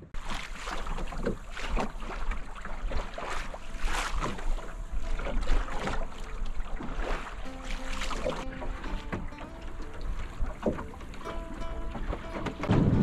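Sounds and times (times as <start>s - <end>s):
waves slapping against hull: 0.0s - 13.0s
wind buffeting microphone: 9.2s - 13.0s.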